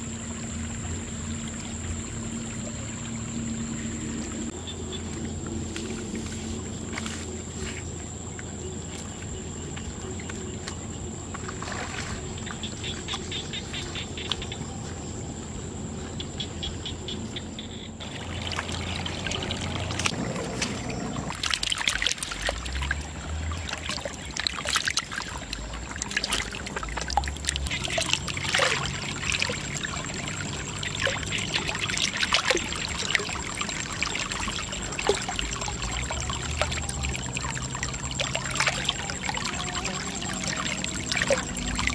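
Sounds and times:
water pouring and splashing: 4.2 - 13.3, 18.0 - 41.9.

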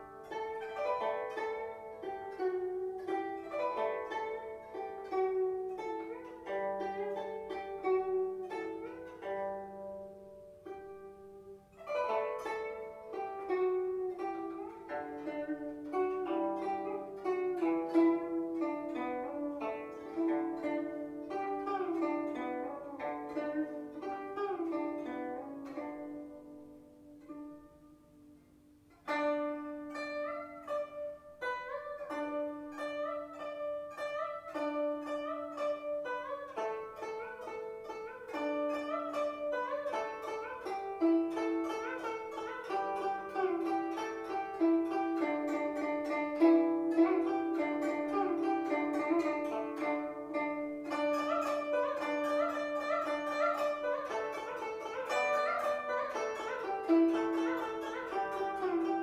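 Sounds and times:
plucked zither melody: 0.0 - 59.0.

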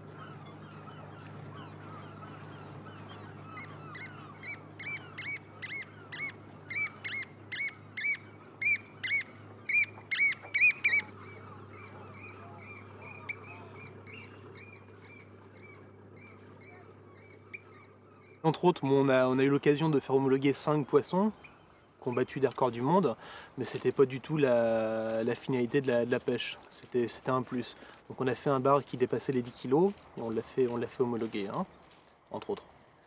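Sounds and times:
oystercatcher piping calls: 0.0 - 19.2
faint low hum: 0.0 - 33.0.

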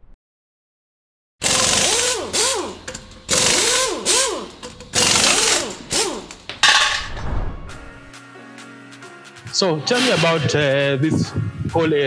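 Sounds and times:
power tool whining bursts: 1.4 - 6.5.

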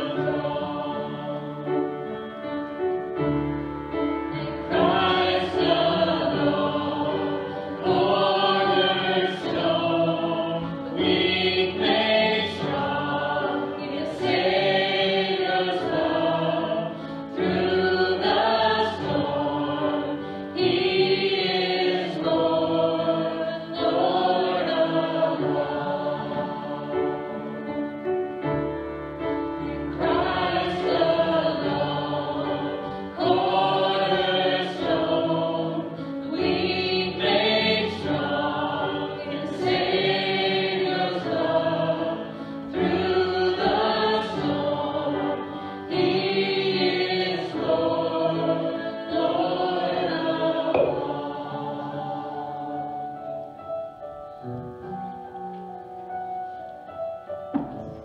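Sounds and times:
voices singing worship song: 0.0 - 2.6, 4.0 - 28.1, 29.4 - 54.1
instrumental accompaniment: 50.6 - 58.0.

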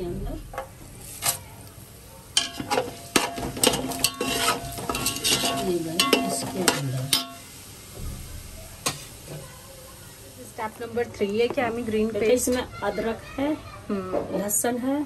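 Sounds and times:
spices sizzling in oil: 0.0 - 15.0
spoon scraping a cooking pot: 2.4 - 7.4.

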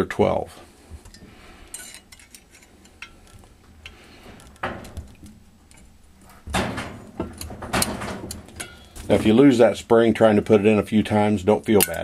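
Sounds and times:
light metal clicks and scrapes: 1.0 - 9.2, 11.7 - 12.0.

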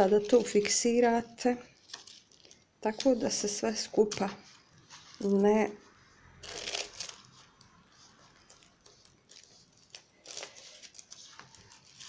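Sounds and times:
paper sheets rustling and sliding: 1.8 - 5.6, 6.4 - 12.0
paper scrapes: 6.4 - 12.0.

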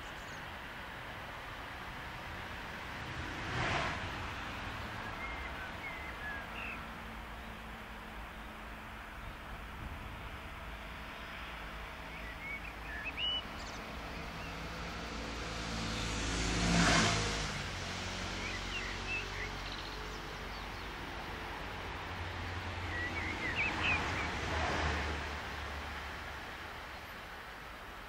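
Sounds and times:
vehicle passing by: 1.6 - 6.7, 13.1 - 26.9
birds chirping: 4.4 - 9.6, 11.2 - 14.8, 22.2 - 25.2.

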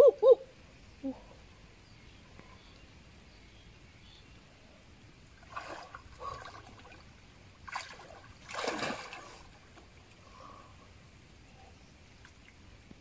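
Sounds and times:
quiet river flow: 0.0 - 13.0
water splashing: 5.3 - 10.2.

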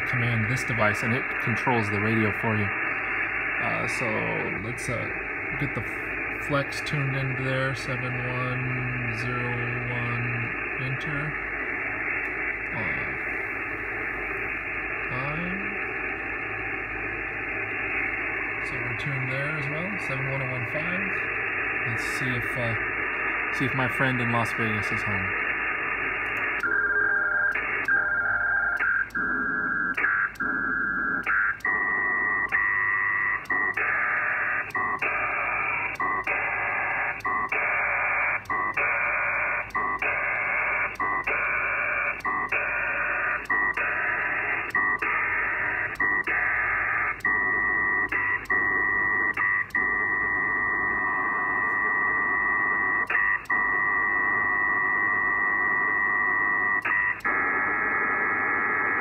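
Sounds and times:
radio data tone bursts: 0.0 - 59.0.

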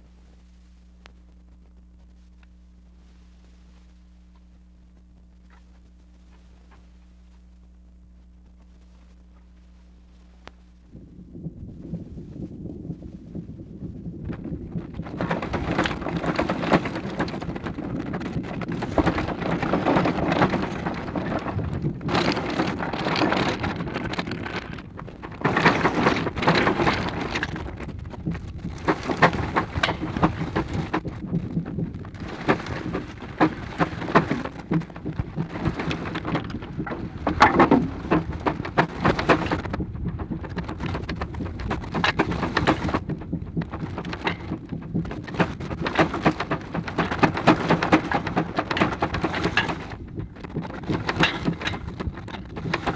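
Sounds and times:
film soundtrack crackling: 13.9 - 52.9.

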